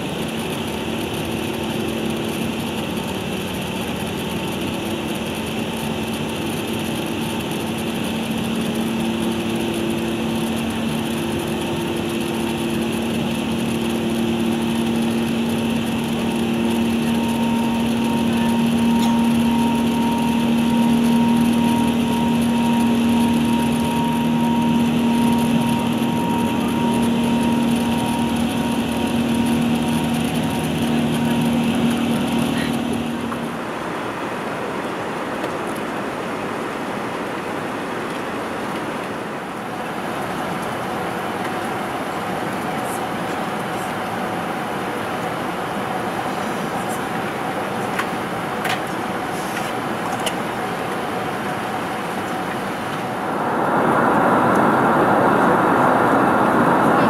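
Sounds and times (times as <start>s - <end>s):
constant low hum: 0.0s - 35.9s, 47.8s - 57.0s
jet engines and rushing air: 9.4s - 42.4s, 50.8s - 57.0s.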